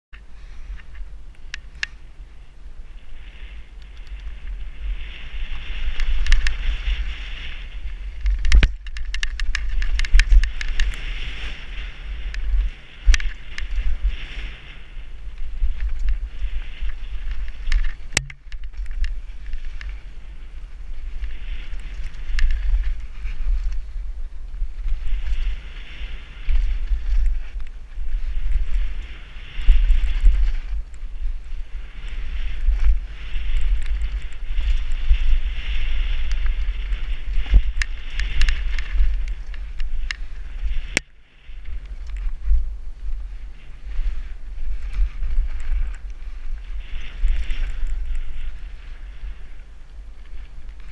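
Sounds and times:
wind buffeting microphone: 0.2 - 50.9
bike clicks and knocks: 0.7 - 2.0, 5.8 - 7.0, 8.0 - 14.0, 15.6 - 20.0, 32.5 - 41.1.

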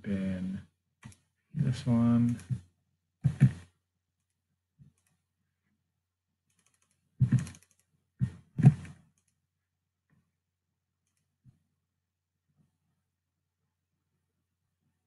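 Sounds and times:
computer mouse and keyboard clicks: 2.2 - 2.6, 3.3 - 5.2, 6.5 - 9.4, 11.0 - 11.3.

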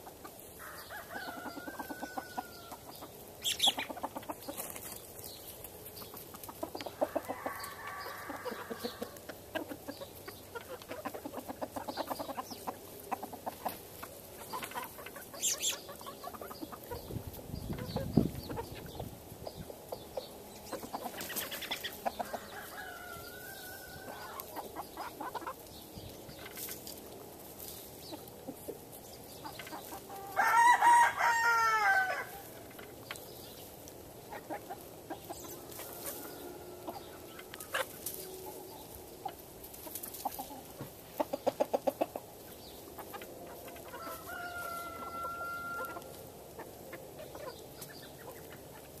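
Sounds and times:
hens clucking: 0.0 - 49.0
rooster crowing: 0.6 - 2.8, 7.0 - 9.2, 22.2 - 24.4, 30.1 - 32.4, 43.9 - 46.1.

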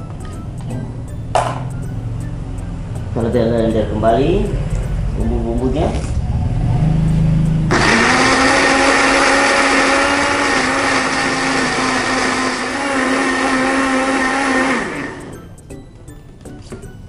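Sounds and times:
blender motor whine: 7.7 - 15.4.

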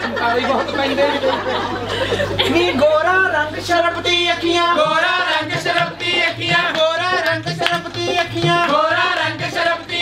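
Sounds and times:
voices singing folk song: 2.0 - 10.0
steady drum beat: 4.0 - 10.0.

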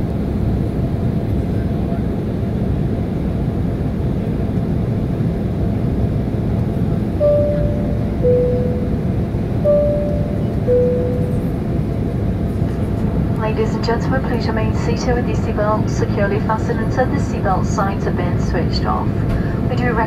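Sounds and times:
jet engine cabin noise: 0.0 - 20.0
two-note cabin chime: 7.2 - 11.8.

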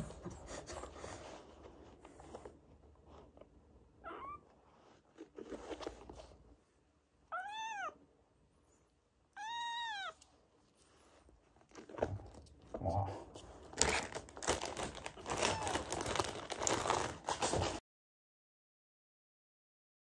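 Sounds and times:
kittens meowing: 4.0 - 4.5, 7.3 - 8.0, 9.3 - 10.2.

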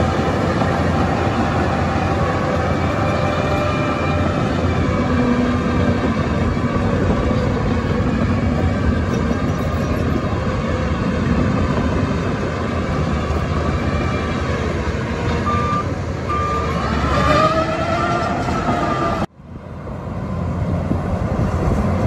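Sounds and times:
diesel engine droning: 0.0 - 22.0
reversing alarm beeping: 15.4 - 16.8.

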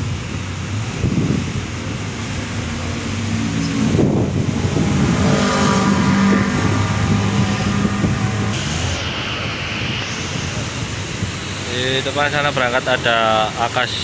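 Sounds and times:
bus diesel engine with whine: 0.0 - 14.0
air hiss: 8.4 - 12.9.

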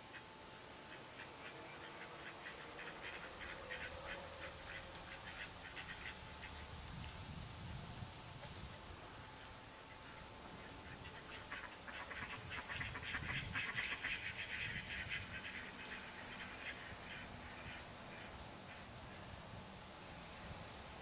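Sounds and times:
ducks quacking: 0.9 - 6.6, 9.9 - 18.9.

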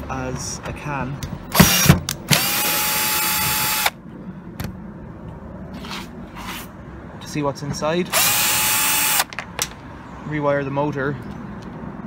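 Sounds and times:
cordless drill whining: 1.6 - 4.0, 8.1 - 9.3.

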